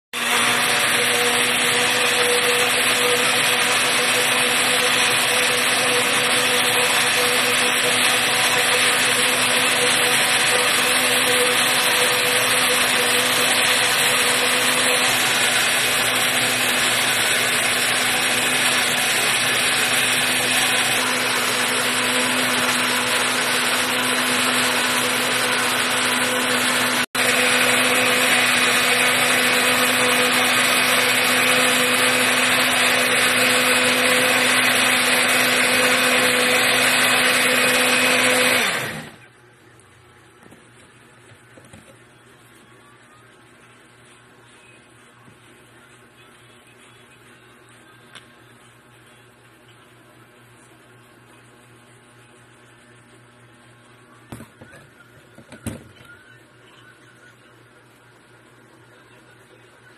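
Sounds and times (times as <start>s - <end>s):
electric blender running: 0.2s - 39.3s.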